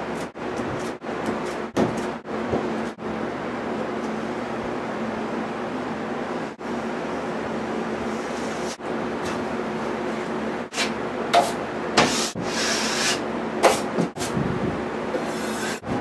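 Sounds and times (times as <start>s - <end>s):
steady background hum: 0.0s - 16.0s
taping knife scraping compound: 15.2s - 15.8s.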